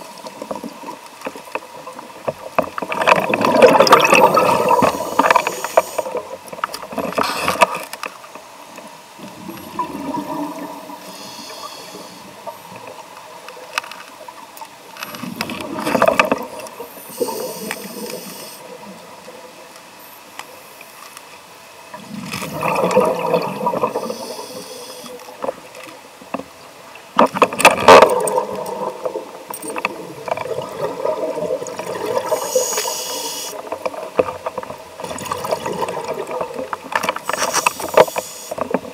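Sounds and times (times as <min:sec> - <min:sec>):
exhaled bubbles bursting: 0:02.9 - 0:05.6, 0:09.3 - 0:11.0, 0:22.0 - 0:24.3, 0:27.8 - 0:32.4, 0:35.0 - 0:36.8
regulator hiss: 0:04.7 - 0:06.2, 0:10.9 - 0:12.6, 0:16.8 - 0:18.8, 0:23.9 - 0:25.4, 0:32.2 - 0:33.7, 0:37.2 - 0:38.7.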